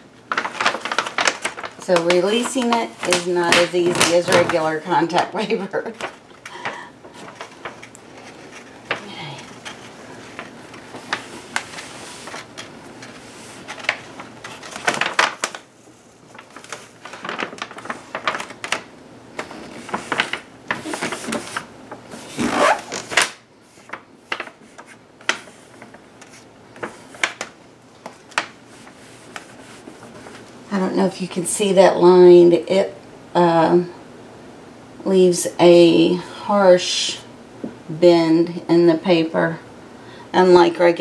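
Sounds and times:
vinyl contact paper crackling: 0.0 - 31.5.

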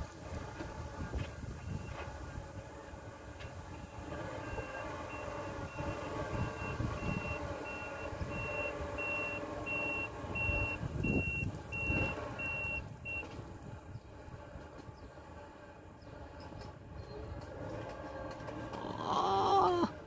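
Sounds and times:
vehicle engine running: 0.0 - 20.0
reversing alarm beeping: 3.8 - 13.3.

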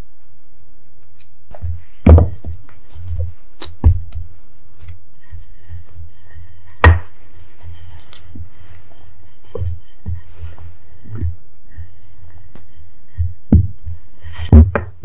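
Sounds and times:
faint rustling: 1.5 - 14.6
dull knocks of rolling pin: 2.0 - 2.6, 6.8 - 7.1, 14.4 - 15.0.

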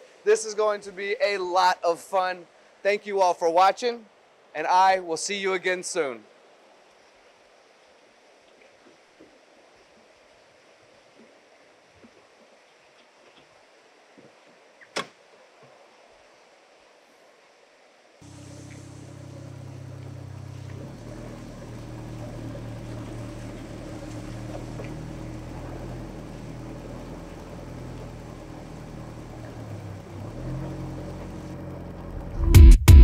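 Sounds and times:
car engine at low revs: 18.2 - 33.0.

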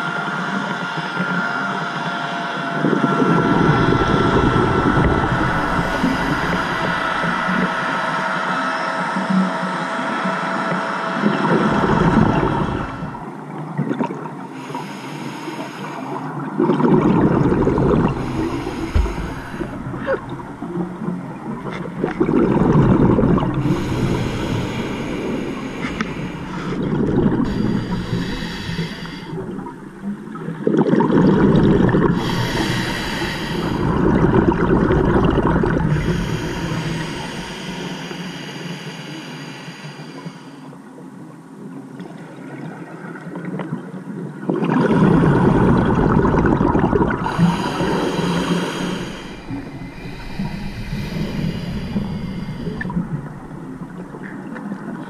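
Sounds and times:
exhaled bubbles underwater: 2.7 - 9.6, 10.6 - 41.0, 41.6 - 55.0
diver breathing through regulator: 3.2 - 8.5, 11.6 - 13.3, 14.6 - 16.3, 17.0 - 30.1, 31.3 - 40.8, 45.3 - 54.5.

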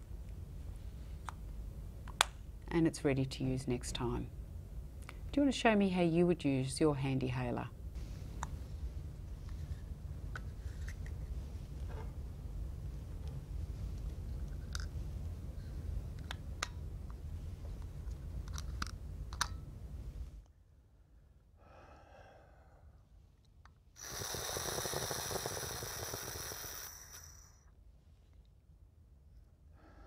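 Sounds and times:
faint breath out: 21.6 - 23.0
inhalation with whistling buzz: 24.0 - 27.7.

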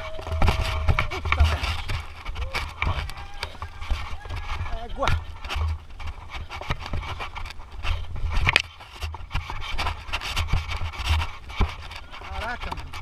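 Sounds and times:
bike rattling and clattering: 0.0 - 13.0
tyres scraping over ground: 0.0 - 13.0.

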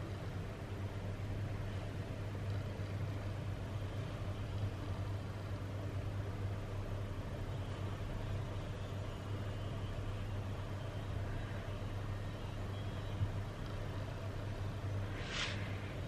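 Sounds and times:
faint hiss: 15.0 - 16.0.

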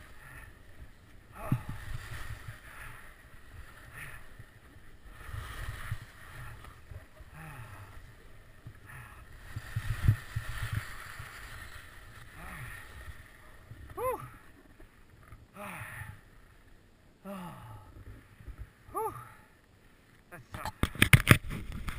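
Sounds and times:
skis scraping over snow: 0.0 - 15.1
wind rumble on microphone: 0.0 - 15.4, 20.8 - 21.9.

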